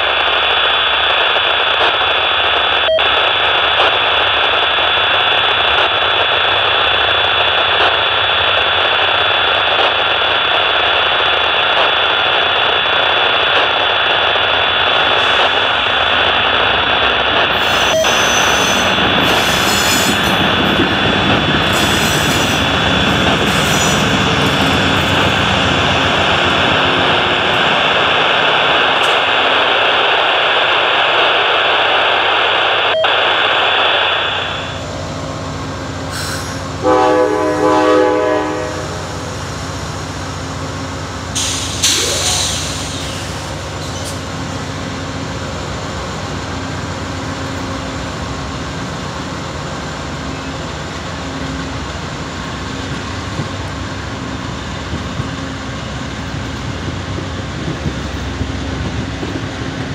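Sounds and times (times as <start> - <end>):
diesel locomotive engine roar: 0.0 - 59.9
high-pitched whine: 9.8 - 48.2.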